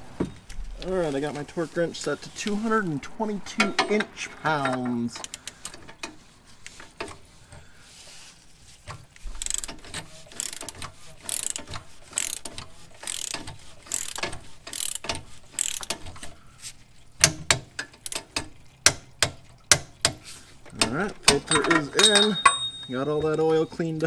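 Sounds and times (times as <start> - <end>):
torque wrench clicks: 9.2 - 16.1
torque wrench ratcheting: 9.2 - 16.2.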